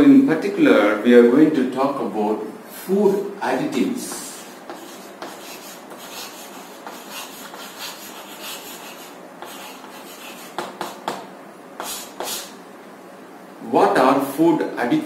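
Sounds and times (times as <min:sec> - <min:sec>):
chalk scratching on chalkboard: 0:04.0 - 0:11.2, 0:11.8 - 0:12.6.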